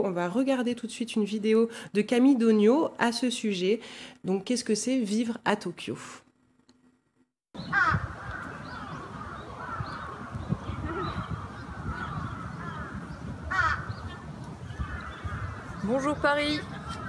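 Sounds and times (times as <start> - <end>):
birds calling harshly: 7.6 - 17.0.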